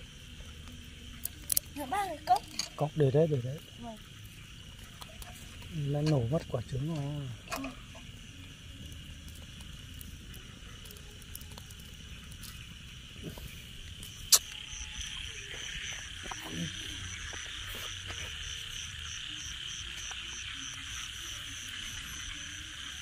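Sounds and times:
insects and frogs calling: 0.0s - 23.0s
pulsing high insect call: 0.0s - 23.0s
sharp crack: 14.2s - 14.6s.

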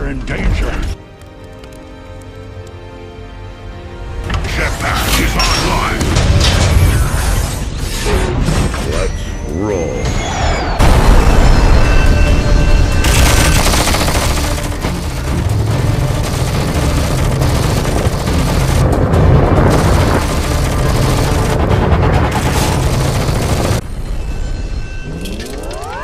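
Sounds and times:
dramatic film score music: 0.0s - 26.0s
booming explosions: 10.8s - 24.1s.

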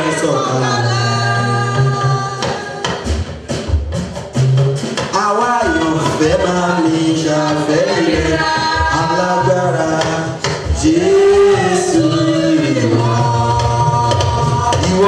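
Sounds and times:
women's choir singing a hymn: 5.7s - 10.1s, 10.7s - 15.0s.

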